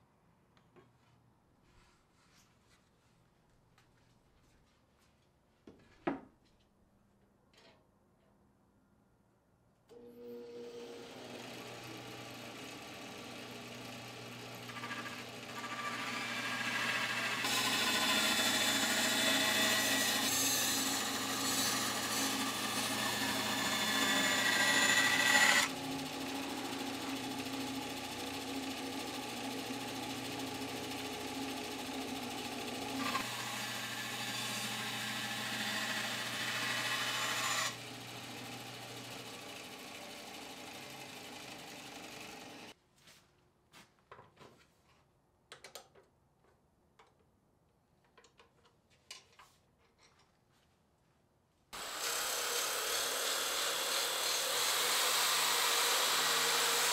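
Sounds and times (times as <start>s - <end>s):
bandsaw cutting wood: 10.4s - 42.7s, 51.8s - 56.9s
bandsaw motor running: 10.5s - 42.7s, 51.8s - 56.9s.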